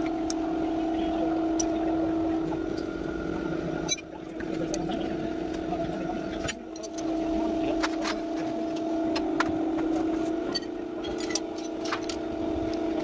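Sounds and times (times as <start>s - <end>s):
steady mechanical hum: 0.0s - 13.0s
tools and metal parts clicking: 6.7s - 7.1s, 10.2s - 12.2s.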